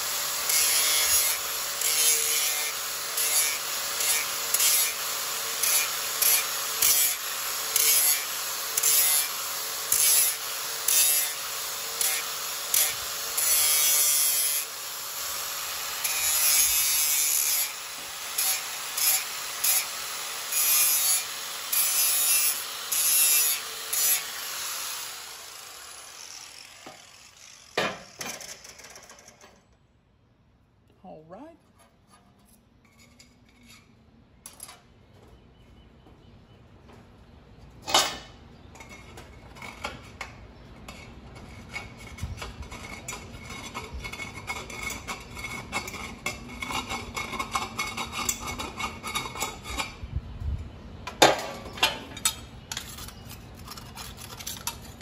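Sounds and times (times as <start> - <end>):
angle grinder grinding metal: 0.0 - 29.6
grinder spinning down: 9.9 - 29.5
grinder set down on bench: 27.8 - 28.5.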